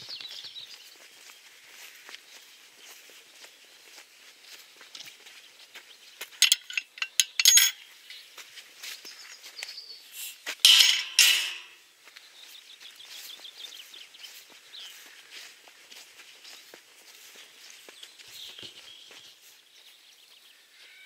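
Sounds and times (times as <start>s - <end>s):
faint footsteps: 0.0s - 9.8s, 10.4s - 21.0s
metal gate clanging: 6.4s - 7.8s, 10.7s - 11.8s
metal latch clinking: 6.4s - 7.8s, 10.7s - 11.8s.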